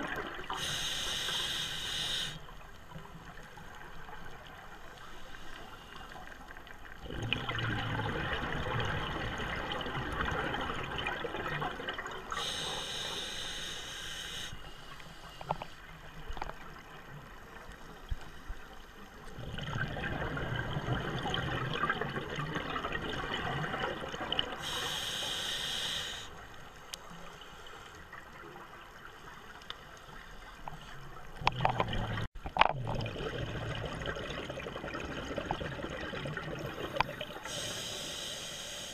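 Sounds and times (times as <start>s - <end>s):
exhaled bubbles underwater: 0.0s - 0.8s, 6.8s - 13.0s, 19.3s - 25.1s, 31.1s - 37.8s
hissing regulator inhale: 0.5s - 2.4s, 12.3s - 15.8s, 24.6s - 26.4s, 37.4s - 38.9s.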